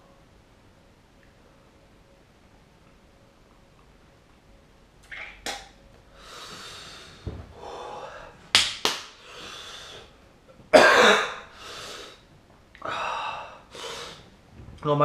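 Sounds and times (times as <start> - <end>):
man breathing hard: 6.1 - 8.4, 9.2 - 10.2, 11.5 - 12.2, 12.8 - 14.3
man coughing: 10.7 - 11.5.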